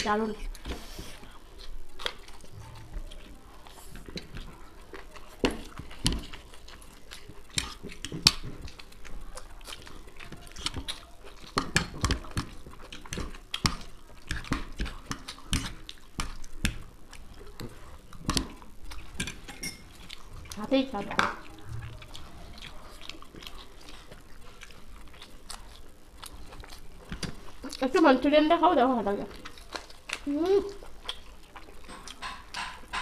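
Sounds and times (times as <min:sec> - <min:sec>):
chewing: 0:00.1 - 0:33.0
forks clicking and scraping plates: 0:19.0 - 0:22.0.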